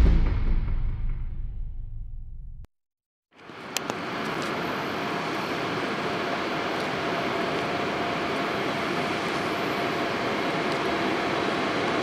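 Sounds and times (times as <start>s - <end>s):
faint steady tone: 3.4s - 12.0s
electric locomotive rumbling: 3.5s - 12.0s.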